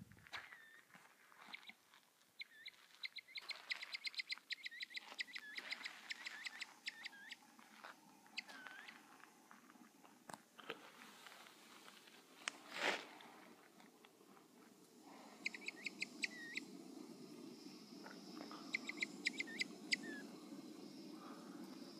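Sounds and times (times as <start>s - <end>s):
quail alarm calls: 2.4s - 7.4s, 8.3s - 9.1s, 15.3s - 16.7s, 18.5s - 20.3s.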